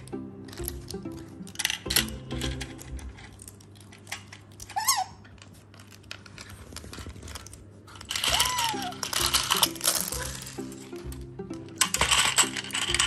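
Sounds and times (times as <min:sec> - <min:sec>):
plastic sticks rattling in toy: 0:00.0 - 0:13.0
otter squeak: 0:08.3 - 0:09.0.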